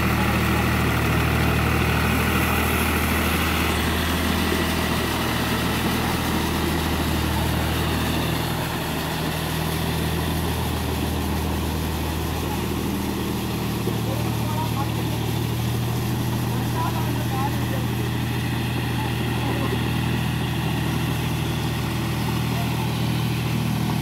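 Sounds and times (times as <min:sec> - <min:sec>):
tractor diesel engine running: 0:00.0 - 0:24.0.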